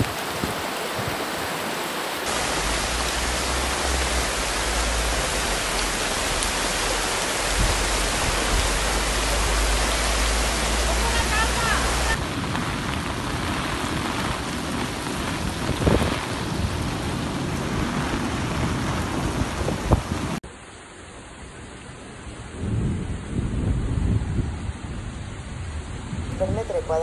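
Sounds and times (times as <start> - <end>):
heavy rain pouring: 0.0 - 27.0.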